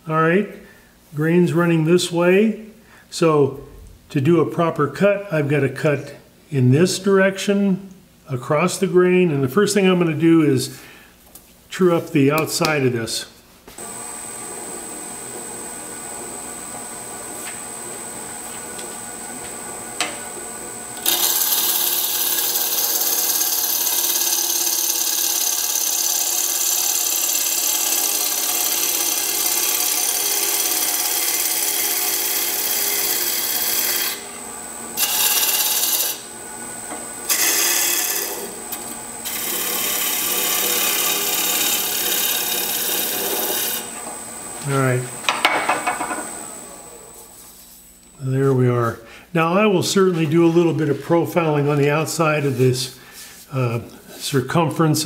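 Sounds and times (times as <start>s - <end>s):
lathe running hum and whine: 13.8s - 47.7s
lathe tool cutting hiss: 20.0s - 44.0s.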